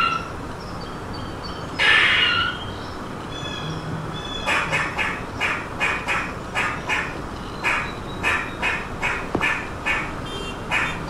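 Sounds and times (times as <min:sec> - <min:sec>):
harsh animal call: 0:01.8 - 0:02.7.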